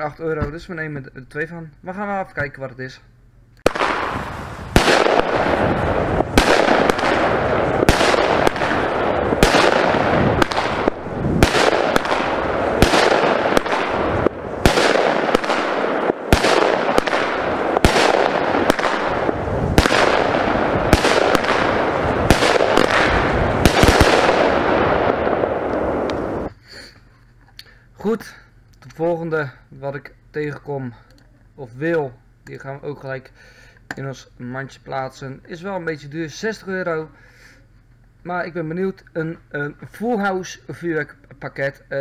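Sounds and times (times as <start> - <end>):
fireworks bangs: 3.6 - 26.5
fireworks crackle: 3.6 - 26.5.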